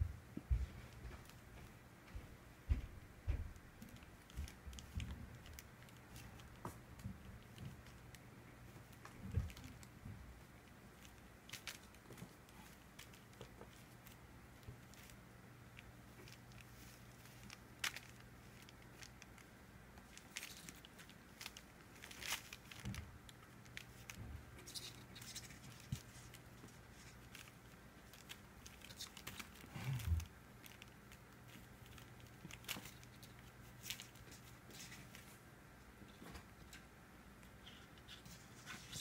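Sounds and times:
kitten paws tapping: 0.4 - 19.4.

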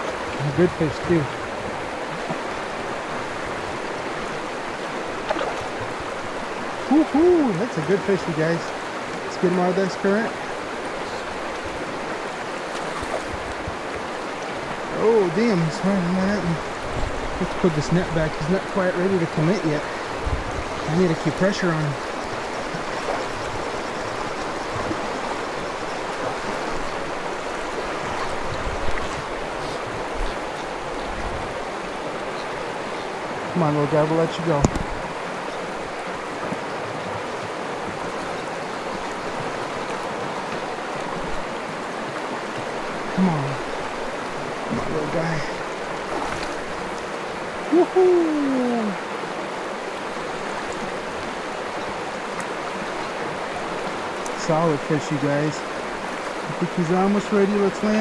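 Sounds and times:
river current rushing: 0.0 - 58.0
man's wordless vocal sound: 6.9 - 7.8, 43.1 - 43.7, 47.7 - 49.0.

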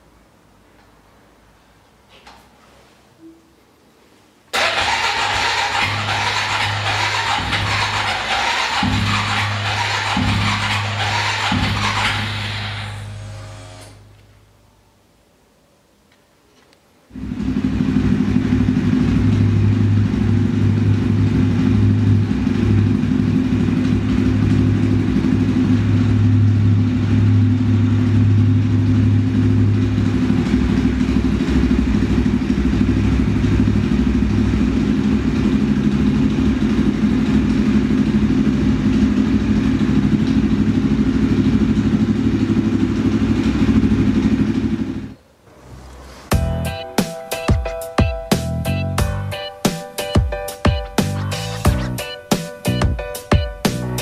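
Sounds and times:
motorcycle engine idling: 4.6 - 13.3, 17.2 - 45.2.

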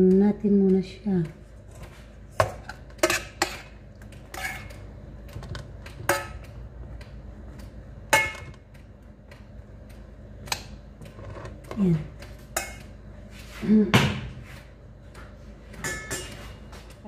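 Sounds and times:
metal spoon clinking in pan: 12.6 - 12.9, 15.8 - 16.4.

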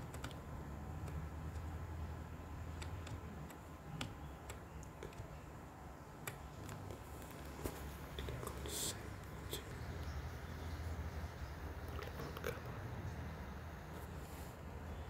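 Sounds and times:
keyboard and mouse clicks: 0.0 - 5.4, 6.2 - 8.6
low steady hum: 0.0 - 15.0.

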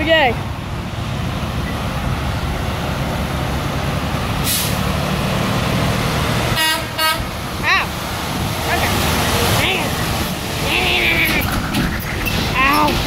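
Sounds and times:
truck diesel engine rumbling: 0.0 - 13.0
short air hiss: 4.4 - 4.8
air horn toot: 6.6 - 7.3.

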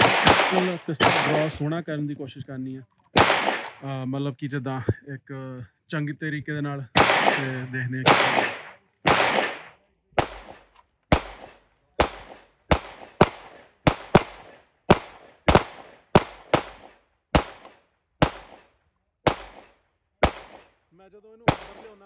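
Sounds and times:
pistol shots with ringing echo: 0.0 - 1.7, 3.2 - 3.9, 7.0 - 20.8, 21.4 - 22.0.

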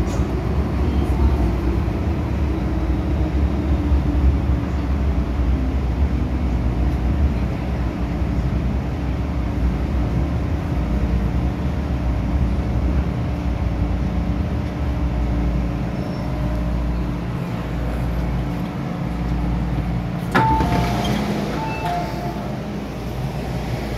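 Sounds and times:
train rumble and motor hum: 0.0 - 23.9
door clunk: 20.3 - 22.2
two-note door tones: 20.4 - 22.5.

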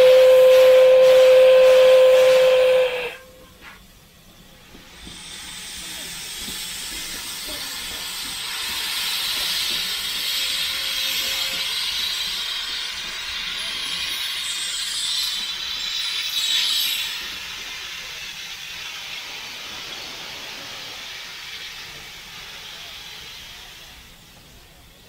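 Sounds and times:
steam locomotive whistle: 0.0 - 3.6
steam venting hiss: 0.0 - 25.0.

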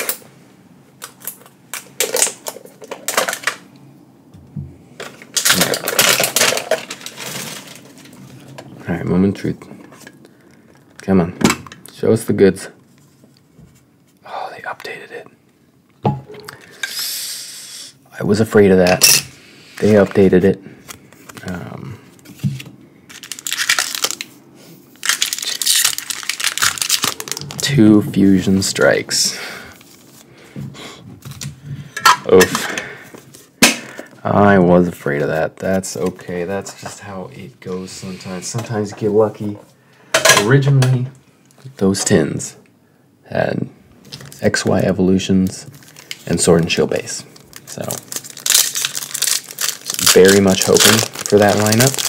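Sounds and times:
foil pack clicks and rustles: 1.0 - 3.6, 5.0 - 8.5, 23.1 - 24.3, 25.0 - 27.8, 45.6 - 52.0
foil wrapper crinkling: 1.0 - 3.6, 5.0 - 8.5, 23.1 - 27.9, 44.0 - 44.9, 45.6 - 52.0.

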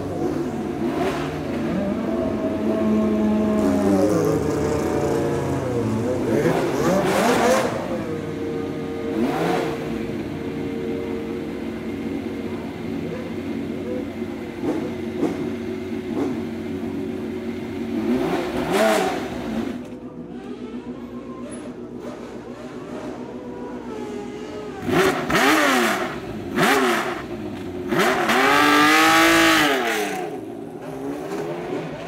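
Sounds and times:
racing car engine idling and revving: 0.0 - 32.0.

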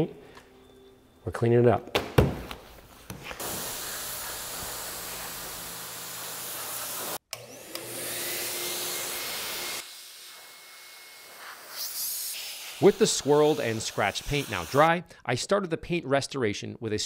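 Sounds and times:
blower motor whine: 3.5 - 11.4.

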